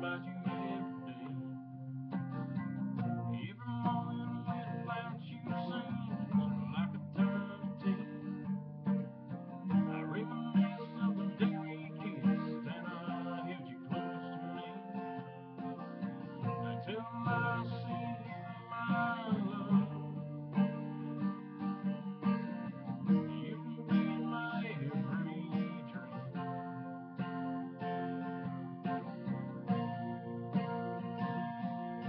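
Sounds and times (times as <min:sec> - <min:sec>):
acoustic guitar strumming: 0:00.0 - 0:32.0.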